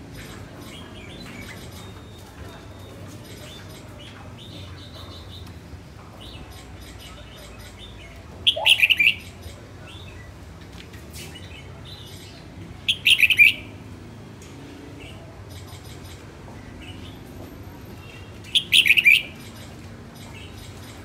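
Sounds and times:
bird singing: 6.2 - 10.3, 12.0 - 13.7, 18.1 - 21.0.

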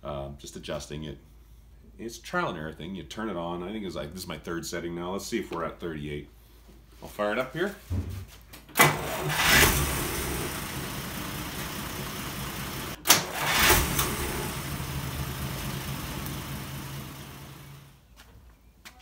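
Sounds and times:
car engine starting and running: 8.8 - 18.0.

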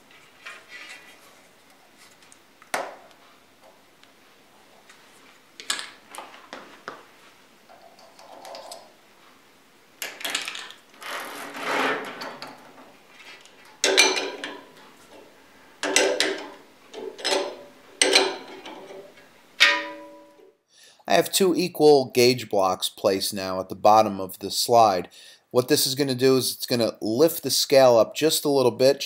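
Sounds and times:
metal hose scraping: 11.0 - 20.4.

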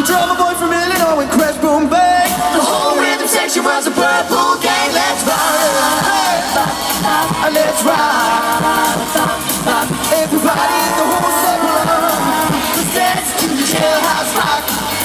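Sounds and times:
live pop vocals: 0.0 - 15.0
loud backing music: 0.0 - 15.0.

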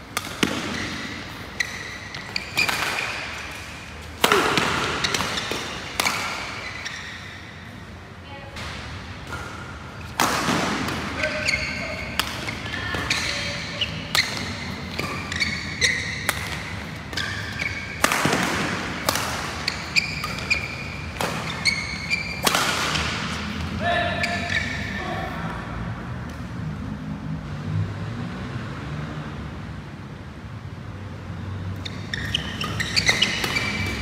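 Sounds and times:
rackets striking shuttlecock: 0.0 - 7.2, 8.6 - 23.5, 31.8 - 34.0
shoes squeaking on floor: 0.4 - 7.7, 11.2 - 18.4, 19.4 - 25.0, 31.8 - 34.0.

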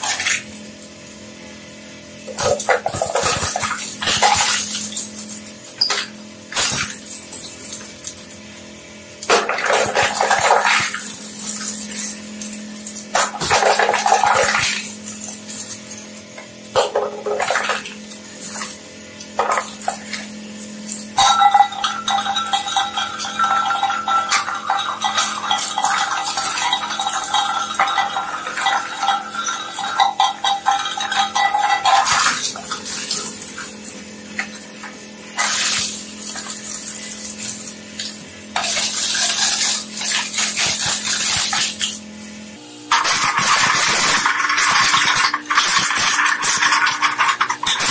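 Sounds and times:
shredder humming: 0.0 - 47.9
shredder cutters crunching: 2.3 - 47.9
metal can grinding and ringing: 20.8 - 33.7, 42.9 - 47.9.

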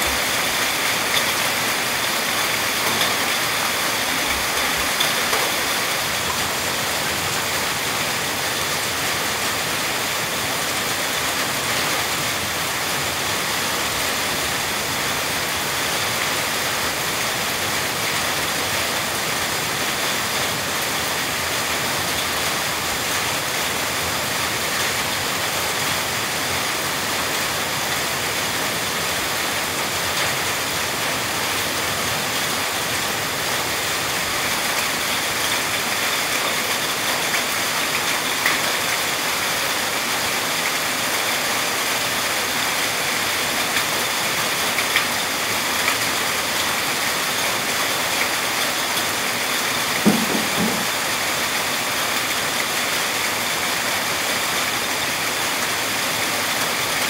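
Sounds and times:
heavy rain falling: 0.0 - 57.0
short knock: 50.0 - 50.9.

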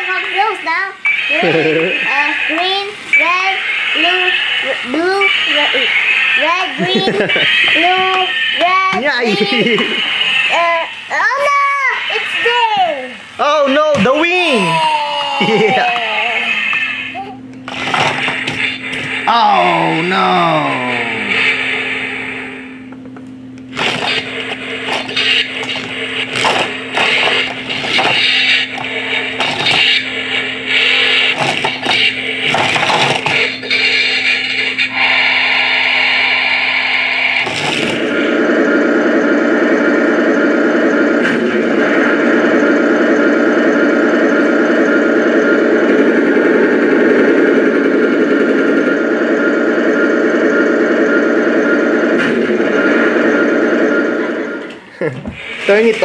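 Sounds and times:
thin high whine: 0.0 - 56.0
toy truck motor hum: 1.3 - 11.5, 14.4 - 21.1.

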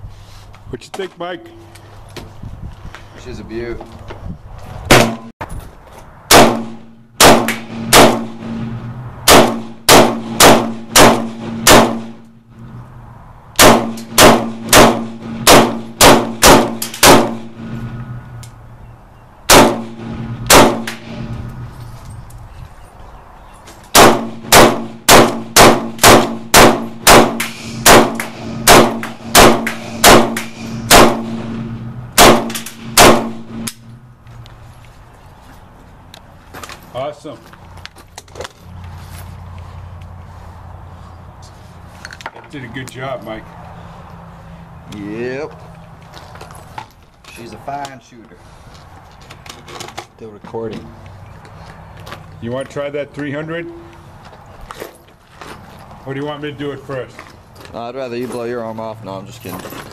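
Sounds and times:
rifle shots: 4.9 - 5.3, 6.3 - 8.7, 9.3 - 12.3, 13.6 - 17.7, 19.5 - 21.3, 23.9 - 33.9
low hum: 19.6 - 22.4, 25.7 - 34.8.

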